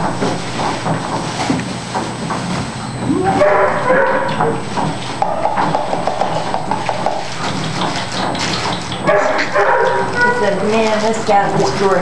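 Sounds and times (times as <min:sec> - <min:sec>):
underwater treadmill running: 0:00.0 - 0:12.0
dog whining: 0:02.9 - 0:04.7, 0:09.1 - 0:10.6.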